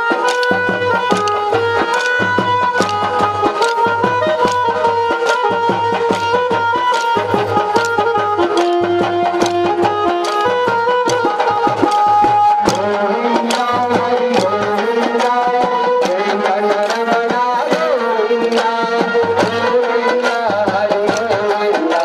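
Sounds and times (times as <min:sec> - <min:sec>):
drum beat: 0:00.0 - 0:22.0
folk melody: 0:00.0 - 0:22.0
wooden sticks clicking: 0:00.2 - 0:02.2, 0:02.8 - 0:04.8, 0:06.9 - 0:08.8, 0:10.2 - 0:12.1.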